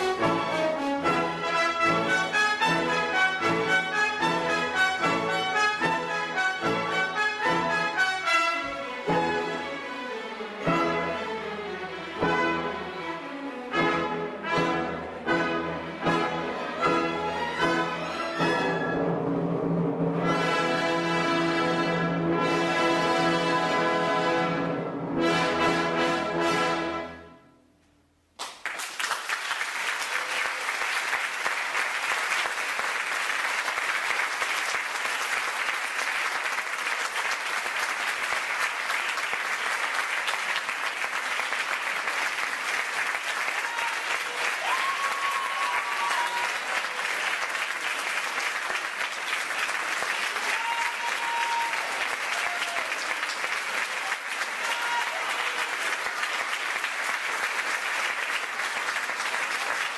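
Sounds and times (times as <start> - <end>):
audience applause: 28.4 - 59.9.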